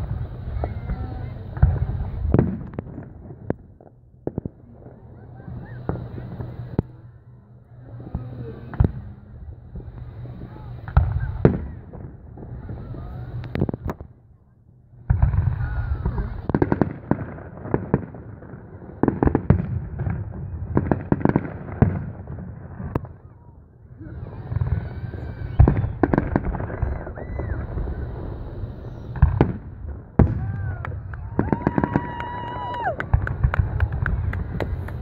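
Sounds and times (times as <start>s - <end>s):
firework shells bursting: 24.4s - 35.0s.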